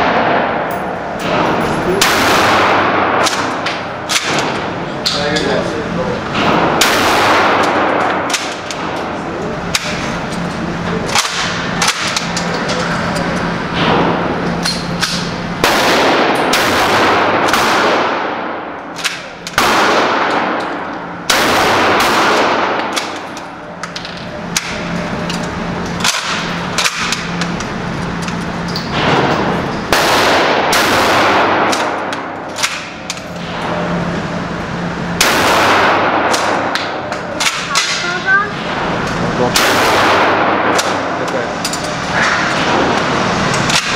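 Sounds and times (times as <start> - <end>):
shotgun shots echoing indoors: 0.0 - 5.2, 6.3 - 9.1, 11.1 - 12.3, 13.7 - 23.6, 26.0 - 27.4, 28.8 - 33.9, 35.0 - 41.2, 42.2 - 43.1
sharp cracks: 6.4 - 9.1, 15.0 - 33.6.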